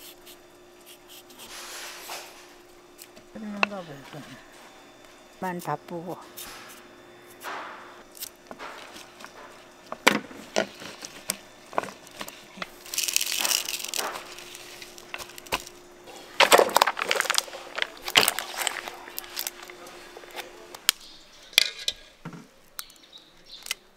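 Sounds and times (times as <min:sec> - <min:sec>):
faint steady hum: 0:00.0 - 0:23.9.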